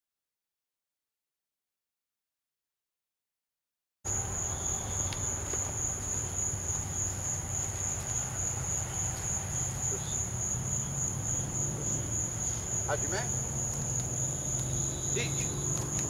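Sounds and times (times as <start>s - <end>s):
crickets chirring: 4.1s - 16.0s.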